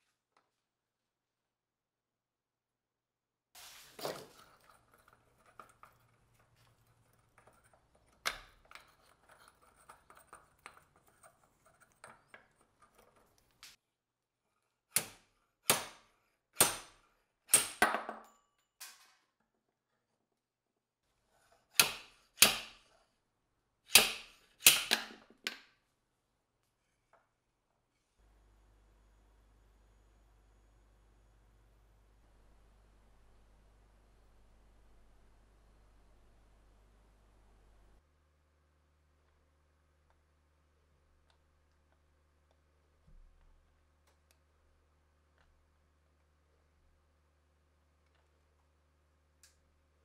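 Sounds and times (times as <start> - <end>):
handling and scraping noises: 3.6 - 13.8.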